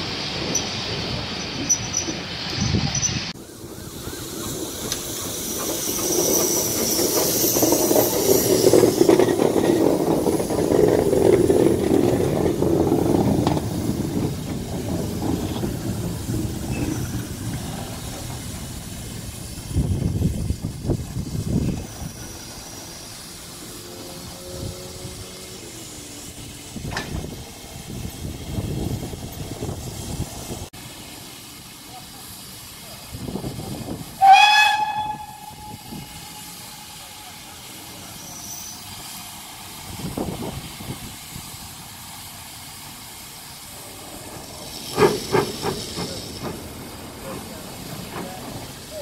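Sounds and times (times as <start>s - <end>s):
steam hissing: 0.0s - 49.0s
steam locomotive passing: 0.0s - 49.0s
sharp rapid locomotive beats: 3.4s - 30.7s, 38.9s - 49.0s.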